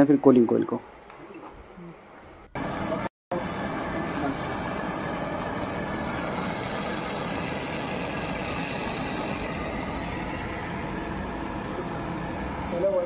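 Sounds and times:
torch flame rushing: 2.6 - 13.0.

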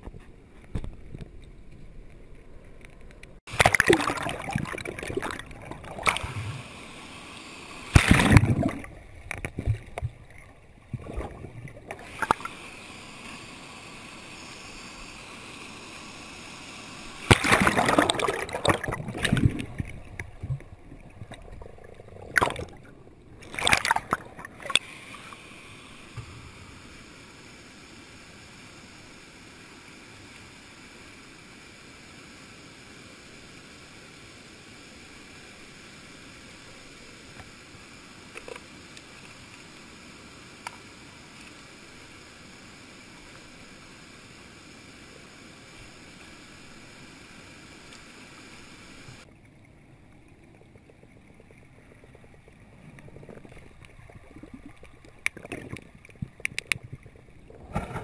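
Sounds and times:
muffled stream water underwater: 0.0 - 58.0
loud splashes or knocks: 7.9 - 8.8, 17.3 - 19.6.

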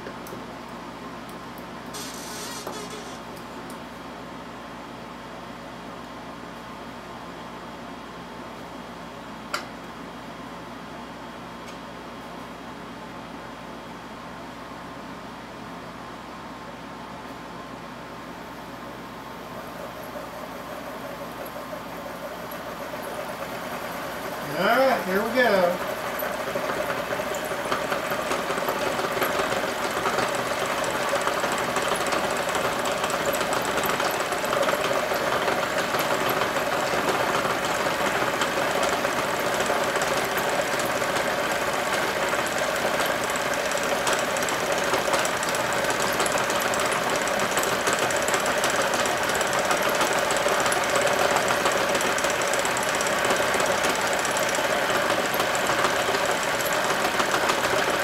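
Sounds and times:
coil winding machine running: 1.9 - 3.5, 19.3 - 58.0.

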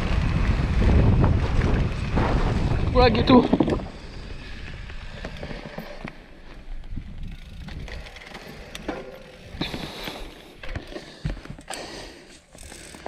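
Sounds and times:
low rumble: 0.0 - 5.7
bike drivetrain clicking and rattling: 0.0 - 13.0.

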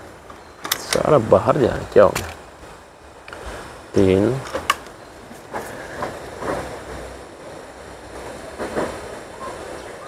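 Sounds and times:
steady background noise: 0.0 - 10.0
air rifle clicks and knocks: 4.4 - 4.9.

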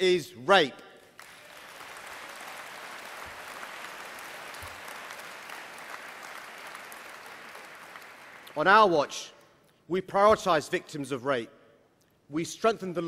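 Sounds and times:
audience applauding: 1.2 - 8.6.

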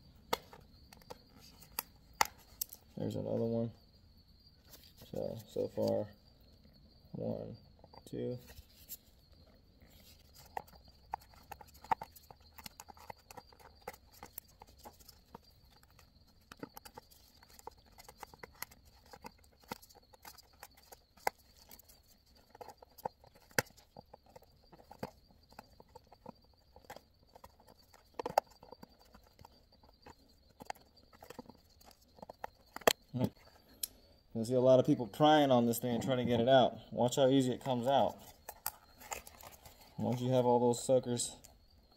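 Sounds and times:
plastic cover handled: 8.4 - 33.6, 37.6 - 40.9.

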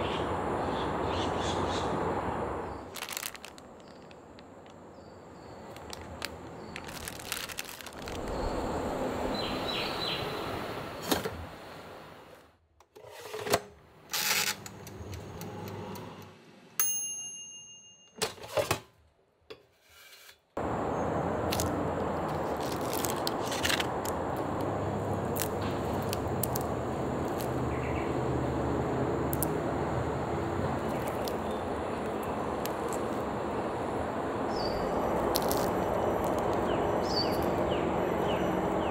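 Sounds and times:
plastic wrapper rustling: 2.9 - 8.6, 22.3 - 24.6, 30.8 - 31.5, 35.2 - 36.7.

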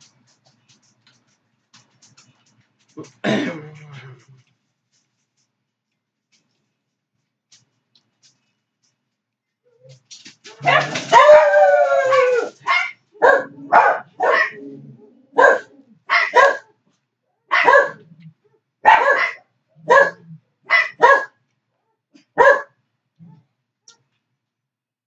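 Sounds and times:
dog barking: 10.6 - 11.4, 12.6 - 14.6, 15.4 - 16.8, 17.5 - 18.1, 18.8 - 21.4, 22.2 - 22.8.

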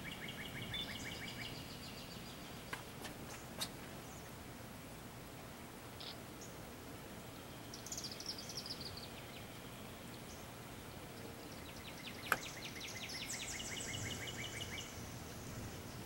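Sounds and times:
small birds singing: 0.0 - 4.5, 6.0 - 16.0
steady outdoor hiss: 0.0 - 16.0.

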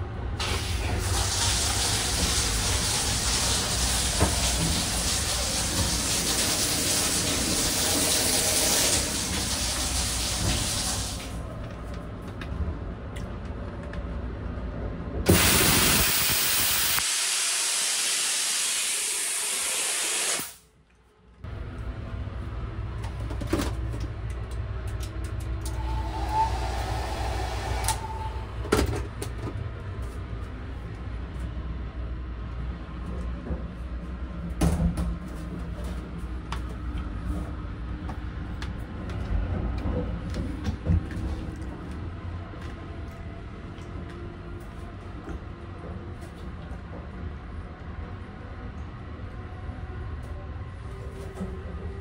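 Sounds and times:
train rumbling: 0.0 - 17.0, 21.5 - 52.0
shower spray hissing: 0.4 - 11.4, 15.3 - 20.6.

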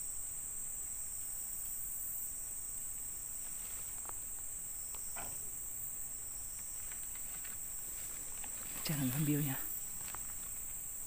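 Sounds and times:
insects buzzing: 0.0 - 11.0
faint rustles: 2.9 - 11.0.

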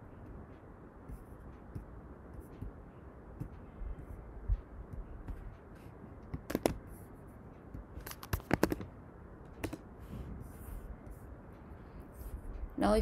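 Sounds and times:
low background hum: 0.0 - 13.0
keyboard keystrokes: 6.2 - 6.8, 8.0 - 8.9, 9.6 - 9.8
mouse clicks: 6.2 - 6.8.

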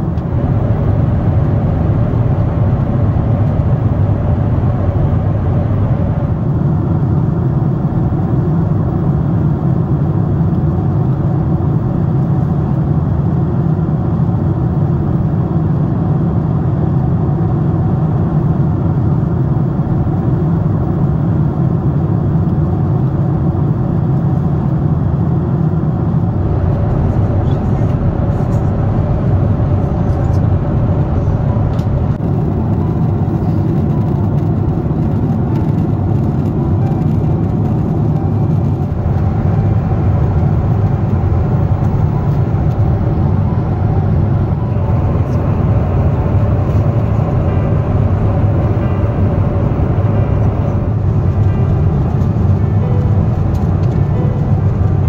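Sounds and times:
airliner cabin drone: 0.0 - 55.0.

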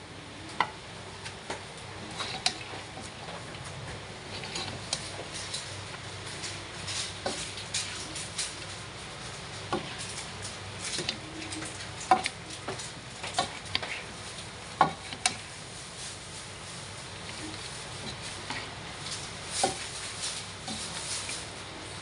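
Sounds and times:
spatula scraping and clacking on pan: 2.1 - 3.0, 4.3 - 15.5, 17.2 - 21.4.

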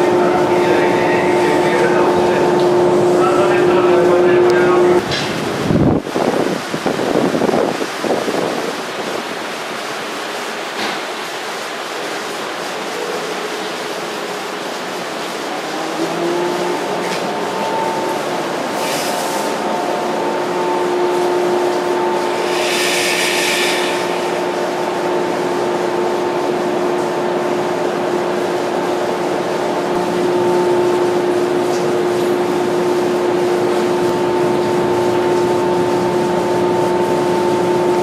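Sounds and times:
train equipment humming: 0.0 - 5.2, 13.0 - 38.0
short hiss: 22.4 - 24.7.

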